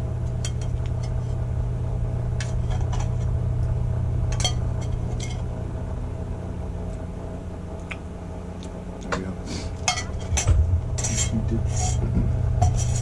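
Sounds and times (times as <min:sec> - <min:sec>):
steady low hum: 0:00.0 - 0:13.0
utensil scraping steel bowl: 0:09.8 - 0:13.0.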